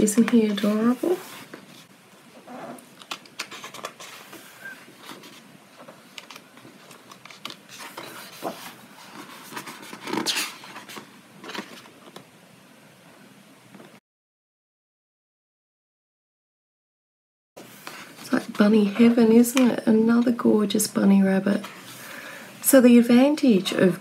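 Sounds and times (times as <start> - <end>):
paper pages rustling: 0.1 - 1.9, 2.9 - 12.2.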